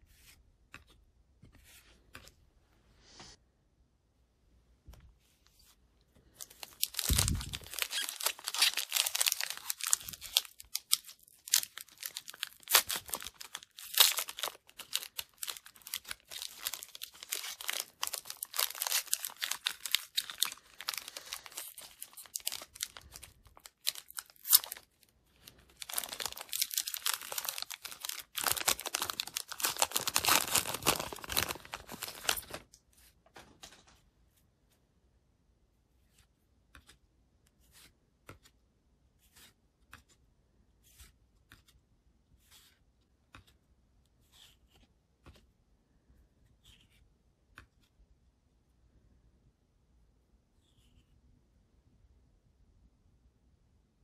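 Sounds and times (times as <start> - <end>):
foil wrapper crinkling and tearing: 6.4 - 32.7.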